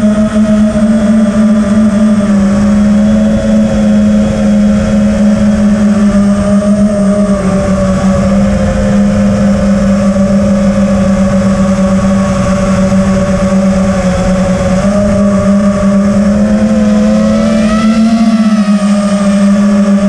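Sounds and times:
quadcopter motors humming: 0:00.0 - 0:20.0
wind rumble on microphone: 0:00.0 - 0:20.0.

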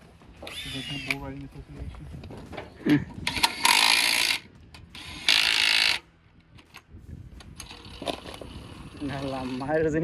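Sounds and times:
power wrench spinning lug nuts: 0:03.2 - 0:06.0.

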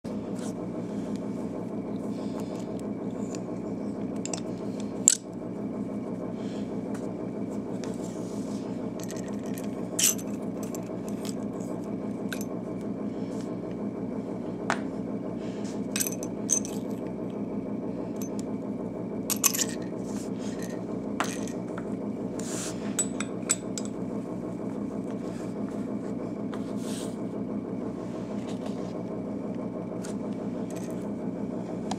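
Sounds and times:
low hum: 0:00.1 - 0:31.9
metal pipe parts clicking and scraping: 0:04.2 - 0:05.3, 0:09.0 - 0:11.4, 0:19.3 - 0:19.9.

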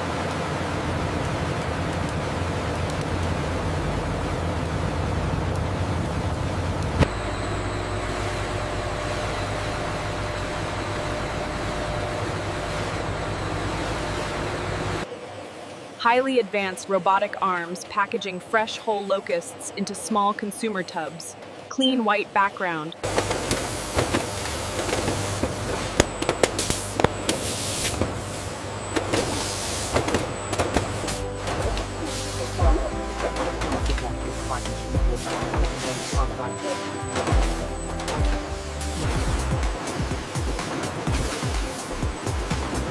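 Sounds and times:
machine low hum: 0:00.0 - 0:16.0, 0:23.0 - 0:42.9
machine rushing hiss: 0:23.1 - 0:37.8.

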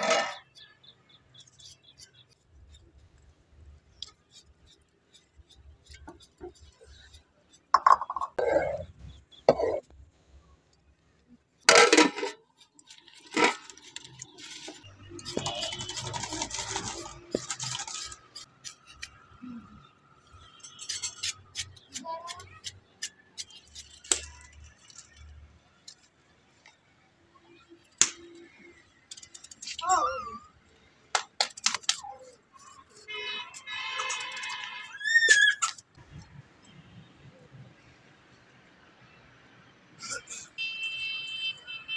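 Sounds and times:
ladle scraping in metal pot: 0:00.0 - 0:00.4, 0:11.7 - 0:18.9
knife and peeler on vegetables: 0:03.9 - 0:07.7, 0:12.6 - 0:19.3, 0:20.3 - 0:25.2.

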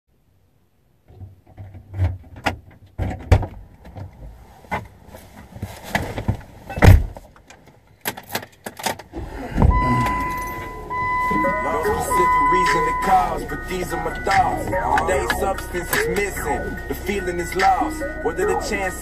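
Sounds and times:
clothing rustle: 0:04.2 - 0:07.4
car door opening: 0:05.8 - 0:17.9.

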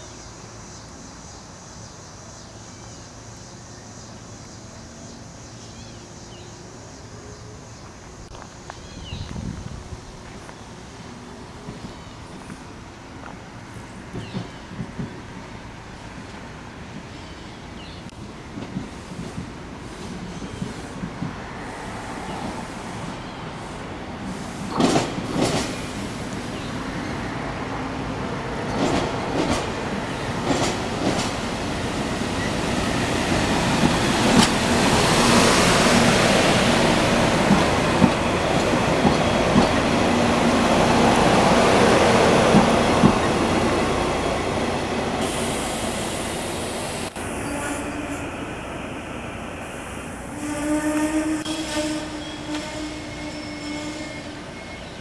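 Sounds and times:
train rolling into station: 0:00.0 - 0:55.0
wheels clacking on rails: 0:14.1 - 0:15.2, 0:18.0 - 0:21.4, 0:24.3 - 0:26.7, 0:28.6 - 0:45.4.

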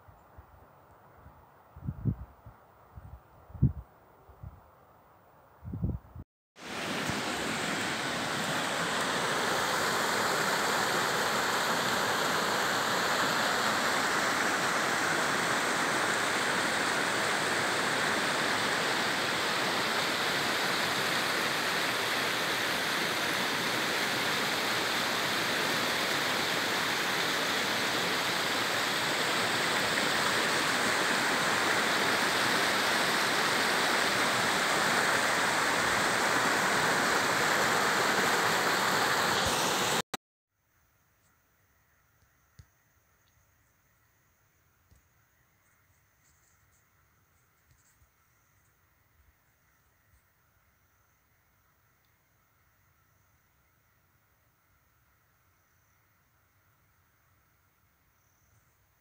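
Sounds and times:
stream rushing over stones: 0:06.6 - 0:40.0.

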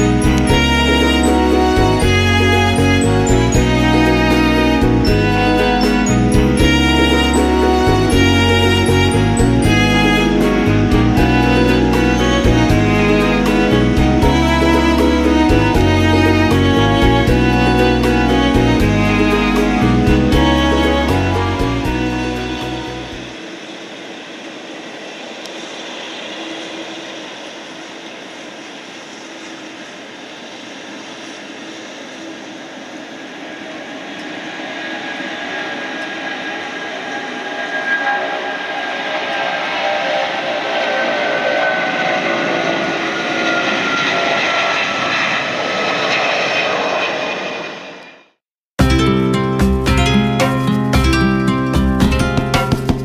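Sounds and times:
background music: 0:00.0 - 0:23.4, 0:48.8 - 0:53.0
distant jet engines at takeoff: 0:00.0 - 0:48.4.

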